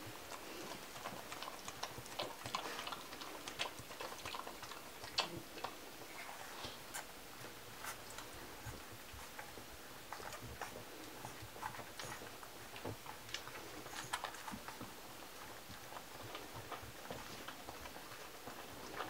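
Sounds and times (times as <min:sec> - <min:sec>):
puppies nursing clicks and smacks: 0:00.0 - 0:19.0.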